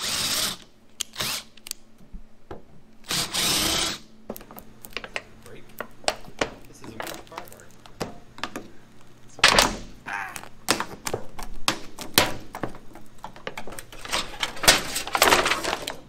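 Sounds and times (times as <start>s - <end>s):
sheet metal and plastic clattering: 11.7s - 16.0s.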